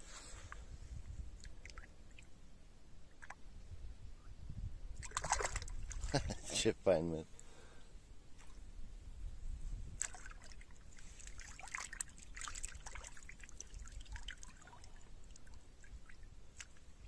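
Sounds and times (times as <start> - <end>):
river water trickling and splashing: 1.4 - 2.4, 5.0 - 6.2, 9.9 - 17.0.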